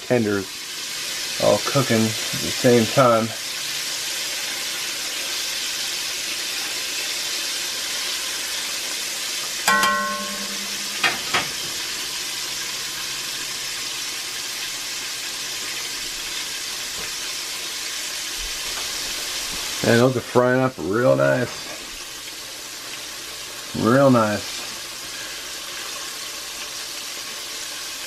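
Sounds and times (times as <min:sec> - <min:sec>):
food deep-frying in oil: 0:00.0 - 0:28.0
metal tongs clanking: 0:09.7 - 0:11.7.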